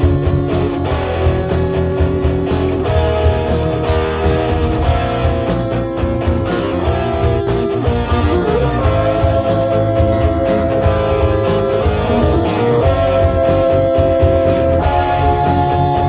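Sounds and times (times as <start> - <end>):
bass line: 0.0 - 16.0
electric guitar sustained notes: 0.0 - 16.0
steady drum beat: 0.0 - 16.0.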